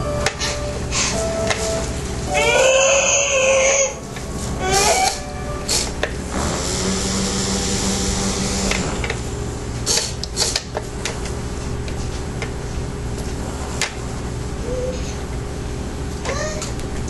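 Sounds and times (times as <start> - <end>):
high steady whine and hiss: 0.0 - 17.0
small electric motors buzzing: 4.6 - 9.3.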